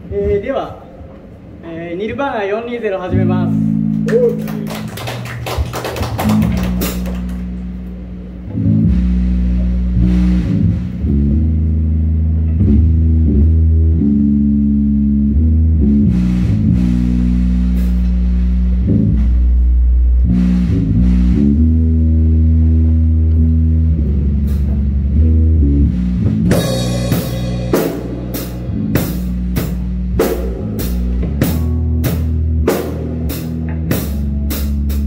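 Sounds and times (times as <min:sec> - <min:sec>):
live rock band playing: 0:03.5 - 0:19.4, 0:20.3 - 0:35.0
drum crashes: 0:06.2 - 0:07.6, 0:26.2 - 0:34.8.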